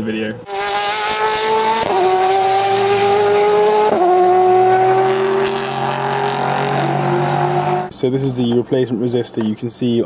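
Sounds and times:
race car engine shifting gears: 0.4 - 7.9.

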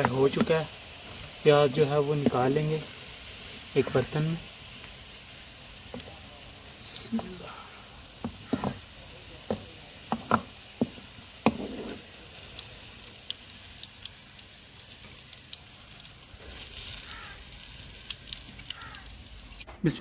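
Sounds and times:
oil sizzling and crackling: 0.0 - 19.8
wooden ladle knocking and scraping: 8.2 - 8.8, 9.5 - 12.0.

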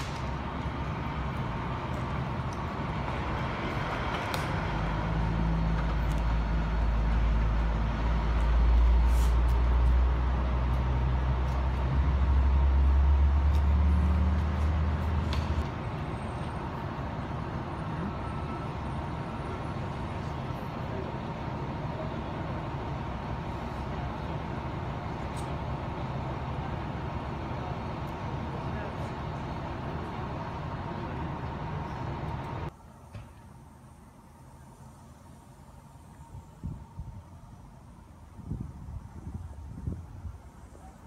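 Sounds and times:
heavy vehicle engine rumbling: 0.0 - 41.0.

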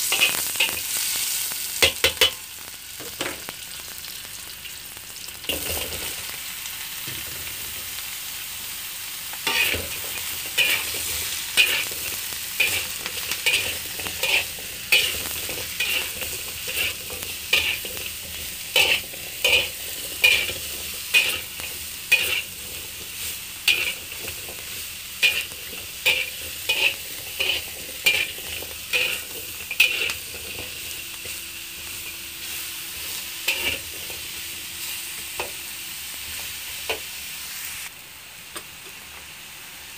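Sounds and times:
vegetables sizzling in oil: 0.0 - 39.9
metal fork scraping a wok: 9.4 - 34.3.

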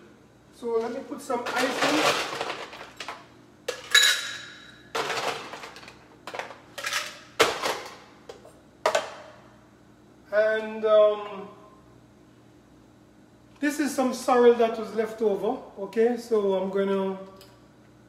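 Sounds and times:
ice cubes clattering into shaker: 1.5 - 3.1.

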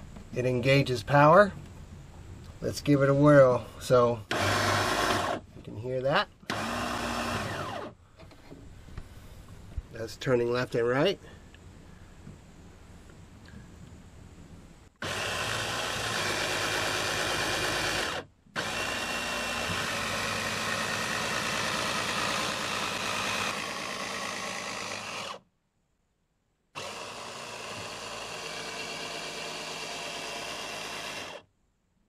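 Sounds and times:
cordless drill motor running: 4.3 - 5.4, 6.4 - 8.0, 15.0 - 25.4, 26.8 - 31.5.

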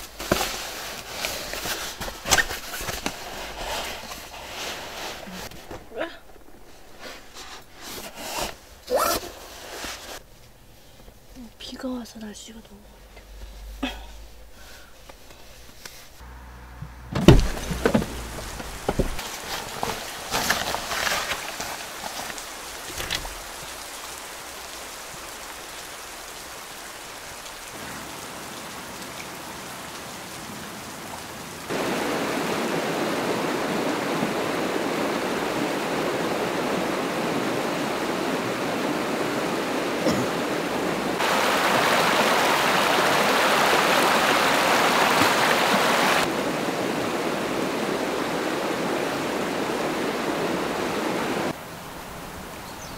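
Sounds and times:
outdoor noise: 0.0 - 52.9
knocks and rustles: 16.8 - 23.7
river rushing over stones: 17.1 - 52.8.

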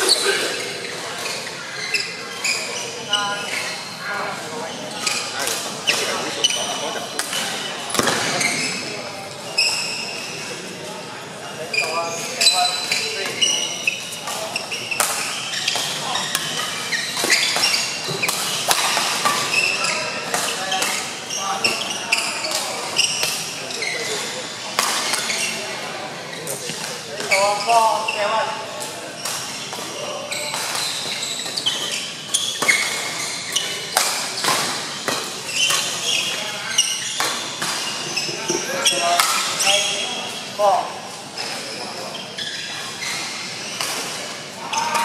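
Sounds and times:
shoes squeaking on court: 0.0 - 10.6, 11.6 - 45.0
rackets hitting shuttlecock: 15.0 - 19.6.

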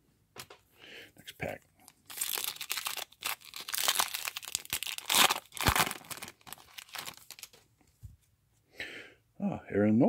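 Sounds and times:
foil wrapper crinkling and tearing: 1.9 - 7.6.

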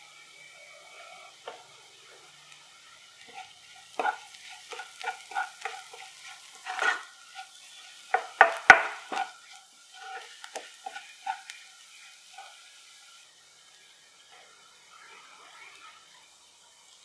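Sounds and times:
light sizzle: 0.0 - 17.0
spatula scraping a pan: 0.6 - 2.3, 3.1 - 13.1.

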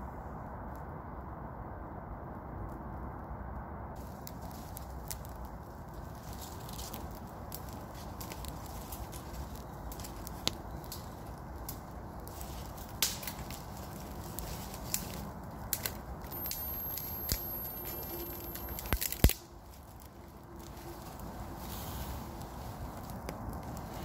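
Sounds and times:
fire crackling: 3.9 - 24.0
sharp pops of burning sticks: 4.0 - 21.3, 22.5 - 24.0.

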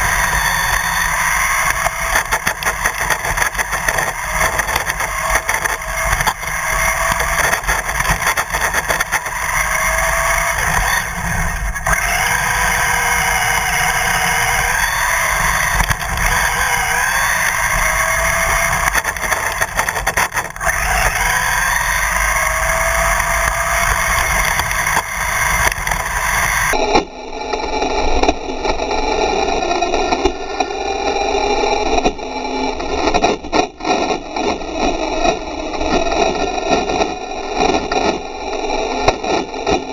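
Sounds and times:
tyre and road rumble: 0.0 - 26.8
electric motor whine: 0.0 - 39.9.

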